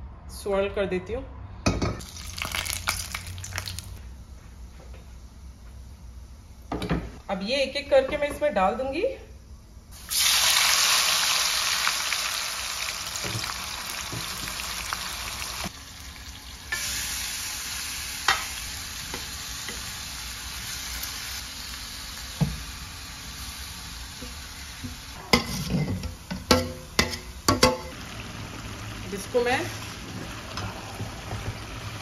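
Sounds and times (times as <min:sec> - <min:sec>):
meat sizzling in hot oil: 0:02.0 - 0:04.0, 0:10.0 - 0:25.8.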